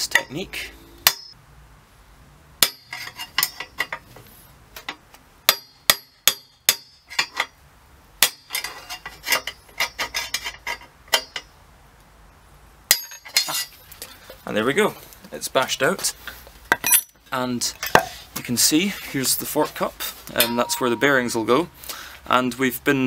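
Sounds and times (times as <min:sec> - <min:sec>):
hammer striking steel rod: 0:01.0 - 0:01.4, 0:02.6 - 0:03.7, 0:05.5 - 0:07.0, 0:20.3 - 0:21.4.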